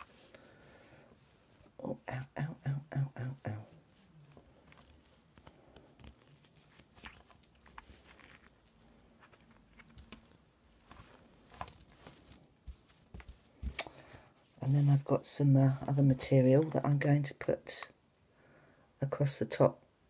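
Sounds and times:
fabric rustling: 0:00.0 - 0:01.9, 0:03.5 - 0:16.8
hands tapping on cutting mat: 0:12.6 - 0:13.8.

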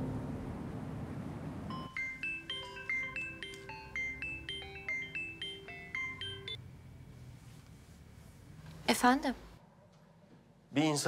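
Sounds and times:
mobile phone melodic ringtone: 0:01.7 - 0:06.6.

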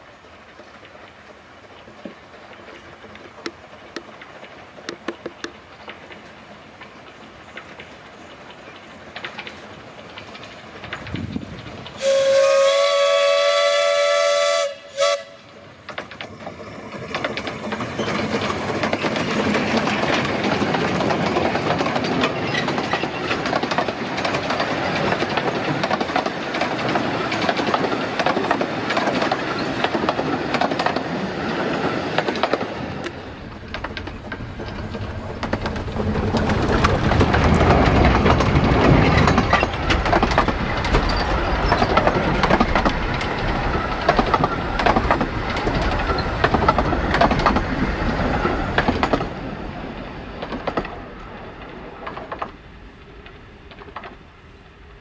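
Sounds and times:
train wheels on rails: 0:00.0 - 0:55.0
steam whistle blast: 0:12.0 - 0:15.5.

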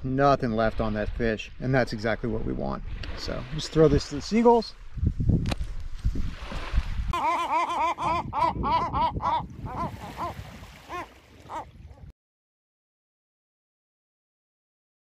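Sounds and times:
surf: 0:00.0 - 0:12.1
wind: 0:00.0 - 0:12.1
gull calling: 0:07.1 - 0:12.1.

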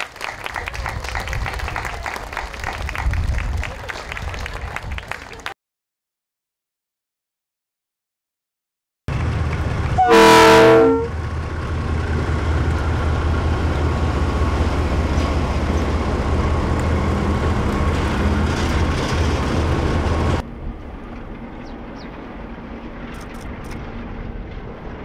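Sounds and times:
train rumbling past: 0:09.1 - 0:25.0
locomotive horn: 0:10.0 - 0:11.2.

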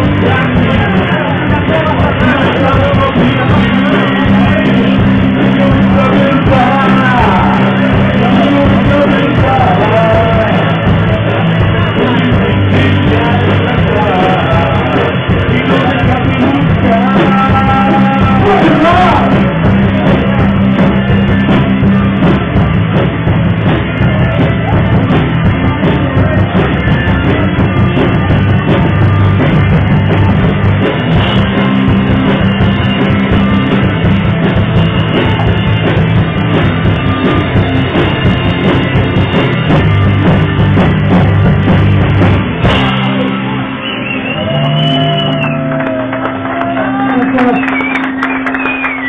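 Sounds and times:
person singing: 0:00.0 - 0:20.6
drum kit: 0:00.0 - 0:49.0
electric guitar: 0:00.0 - 0:49.0.

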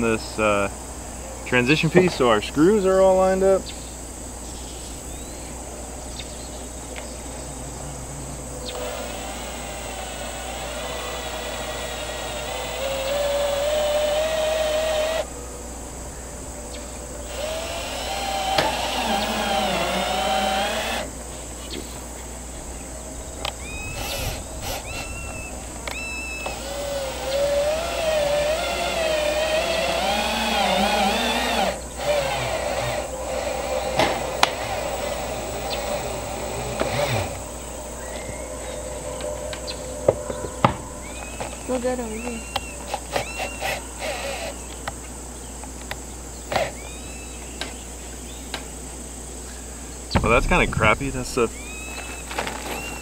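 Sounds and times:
power drill driving screws into metal: 0:17.3 - 0:21.1, 0:23.9 - 0:37.4.

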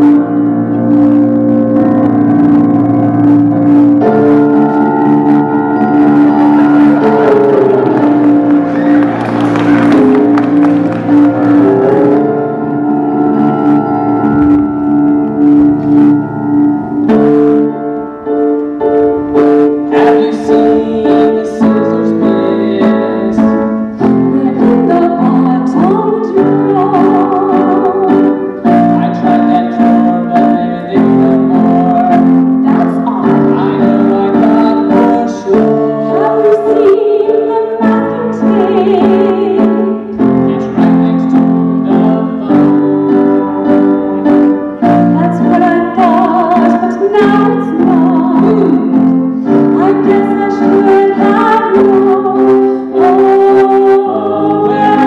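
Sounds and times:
piano chords: 0:00.0 - 0:55.0
woman singing with vibrato: 0:19.2 - 0:40.9, 0:41.8 - 0:55.0.

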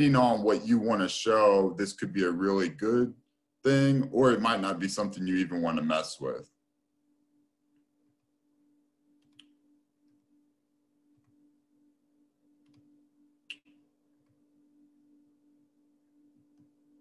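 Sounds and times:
faint steady hum: 0:00.0 - 0:17.0
computer mouse clicks: 0:09.2 - 0:09.6, 0:12.6 - 0:12.9, 0:13.5 - 0:14.4.

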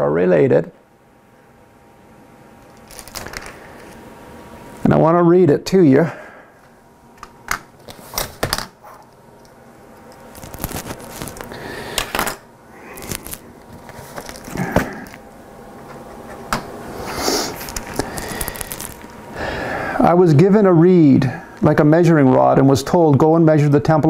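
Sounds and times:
pages rustling: 0:02.8 - 0:04.0, 0:10.2 - 0:12.1, 0:12.9 - 0:15.2, 0:17.5 - 0:19.1.

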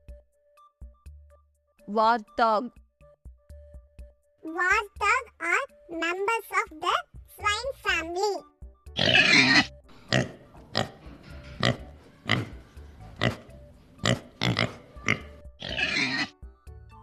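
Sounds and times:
warthog grunting: 0:09.0 - 0:16.3.

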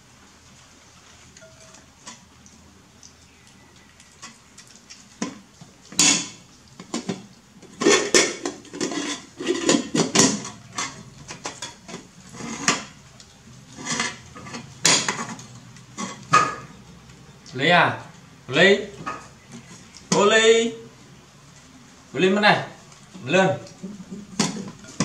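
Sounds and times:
dishes clinking and clattering: 0:01.4 - 0:02.2, 0:05.2 - 0:13.0, 0:13.8 - 0:16.8, 0:23.7 - 0:25.0.

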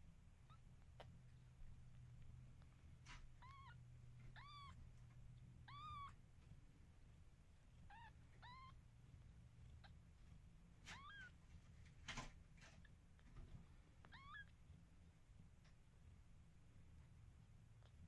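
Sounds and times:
kittens mewing: 0:03.4 - 0:04.8, 0:07.9 - 0:08.8, 0:14.1 - 0:14.5.

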